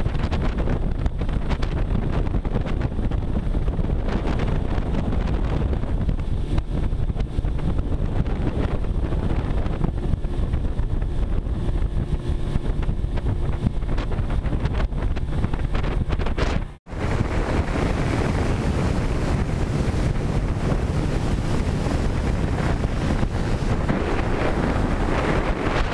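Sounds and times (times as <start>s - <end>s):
water rushing along hull: 0.0s - 25.9s
wind buffeting microphone: 0.0s - 25.9s.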